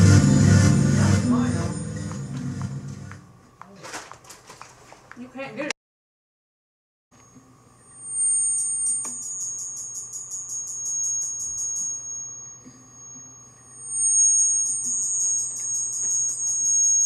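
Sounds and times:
pulsing high electronic tones: 7.8 - 17.0.

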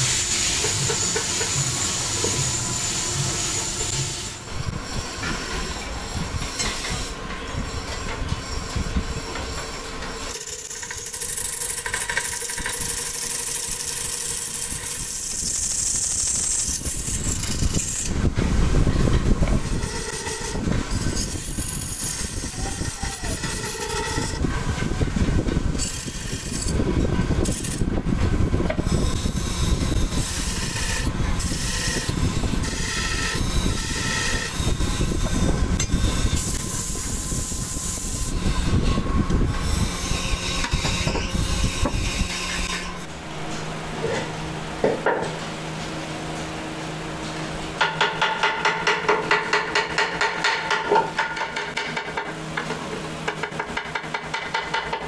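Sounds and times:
wood lathe rumble: 9.1 - 18.1, 28.7 - 37.0
chisel scraping spinning wood: 9.4 - 18.2, 19.4 - 28.0, 28.7 - 36.8.

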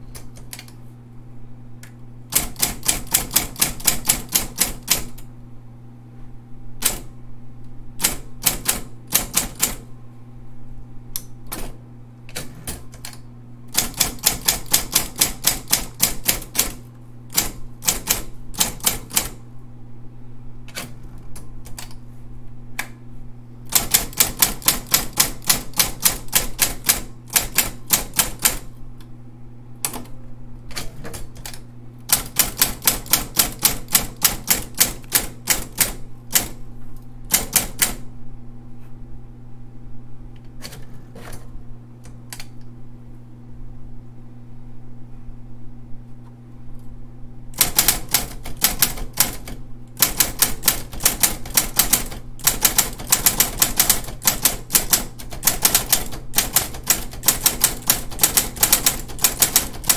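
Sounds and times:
typewriter key strikes: 2.3 - 5.2, 37.3 - 38.0, 47.6 - 59.9
typewriter motor hum: 2.3 - 5.3, 6.8 - 7.1, 8.0 - 9.8, 12.3 - 19.4, 23.7 - 28.7, 29.8 - 36.6, 37.2 - 38.1, 47.5 - 59.9.

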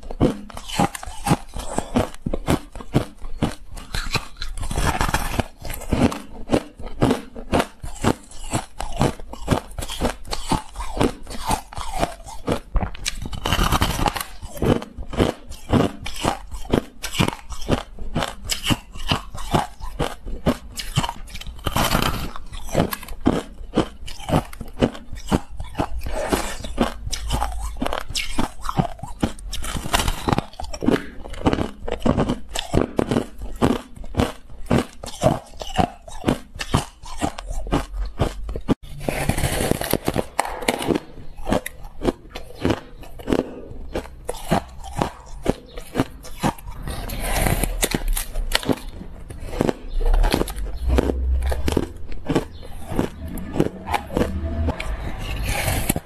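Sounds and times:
ice being chewed: 0.0 - 56.0.

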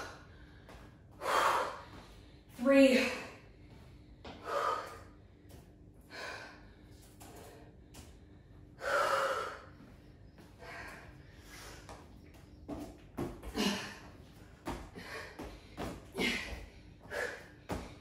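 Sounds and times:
woman breathing heavily: 0.0 - 18.0.

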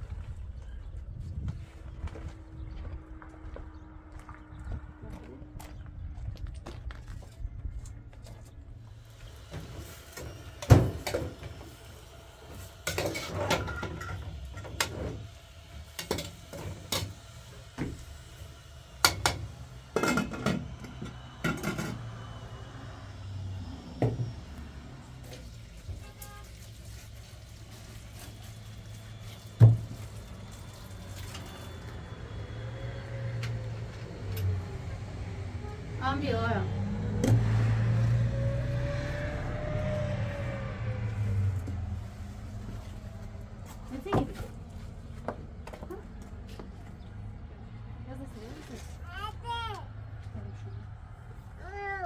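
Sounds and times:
metal pots and lids clanking: 12.8 - 14.9, 20.0 - 20.7.

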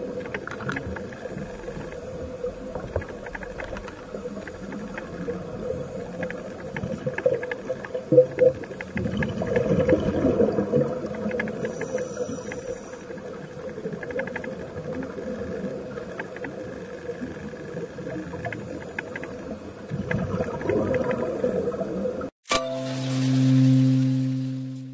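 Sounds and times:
faint clicks: 0.0 - 9.9, 10.7 - 21.3
diver breathing bubbles underwater: 8.3 - 13.4.

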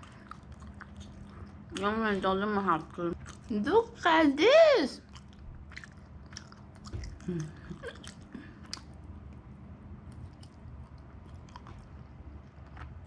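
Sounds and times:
wet chewing mouth sounds: 0.0 - 4.0, 5.0 - 13.0
person humming: 7.2 - 7.8.

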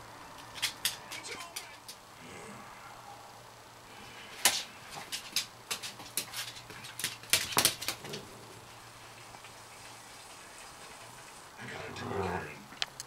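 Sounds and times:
claws and paws scuffling on wood: 4.9 - 8.3.

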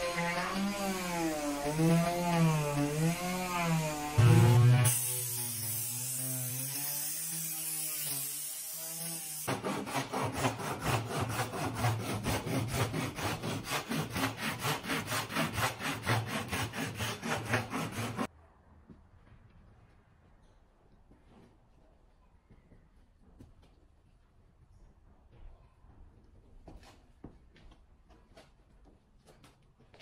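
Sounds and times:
electric orbital sander running: 0.0 - 9.5
hand saw cutting wood: 0.0 - 18.3.

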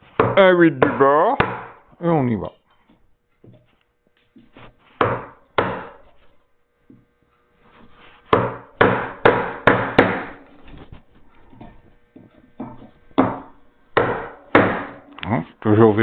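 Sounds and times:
mallet striking chisel in wood: 0.2 - 1.9, 5.0 - 6.1, 8.3 - 10.4, 11.6 - 15.0.

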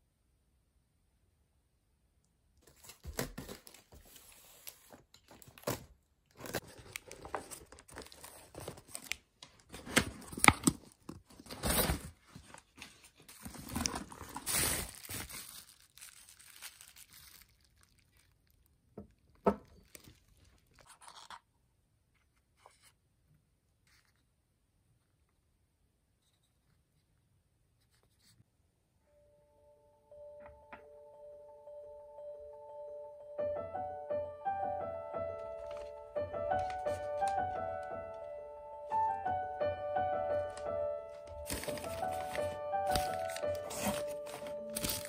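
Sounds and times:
paper and cardboard rustling: 2.6 - 17.5, 19.7 - 21.5, 35.6 - 37.6, 40.5 - 45.0.

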